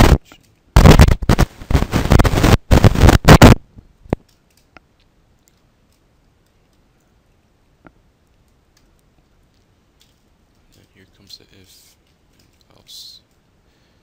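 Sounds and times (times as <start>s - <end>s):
distorted microphone crackle: 0.0s - 5.1s.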